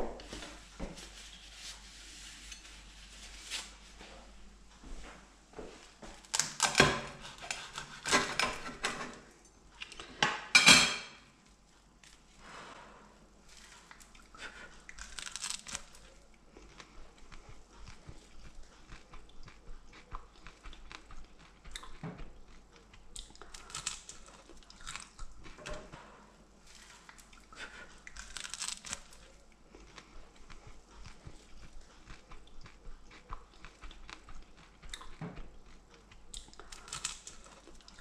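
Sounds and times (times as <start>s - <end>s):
person chewing crunchy snack: 13.5s - 25.9s, 26.7s - 38.0s.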